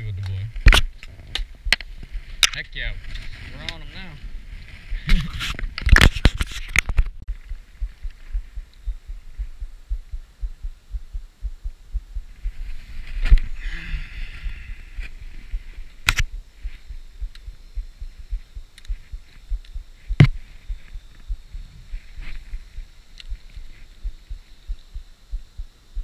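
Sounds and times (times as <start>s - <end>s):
camera handling thumps and rumble: 5.0s - 7.2s, 18.8s - 21.0s
sharp clicks: 18.3s - 20.4s.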